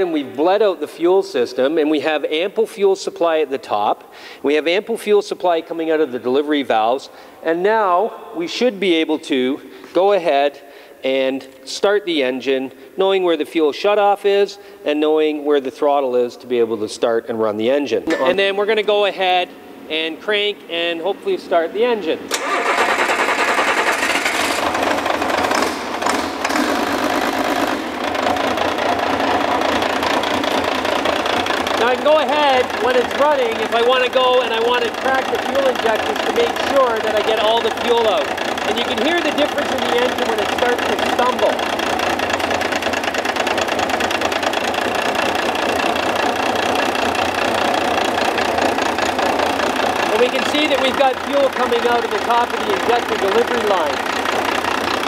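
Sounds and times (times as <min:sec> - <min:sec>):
diesel engine running: 0:22.2 - 0:55.0.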